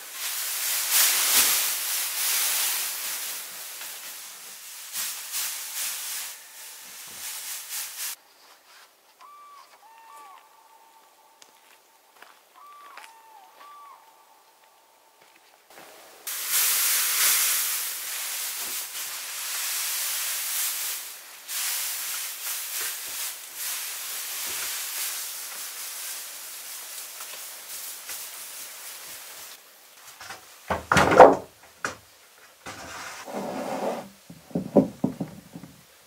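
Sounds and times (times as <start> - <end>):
wood shavings rustling: 0.0 - 10.5, 15.2 - 31.6, 32.3 - 35.8
small thump: 34.3 - 35.7
heavy wooden knock: 34.3 - 35.8.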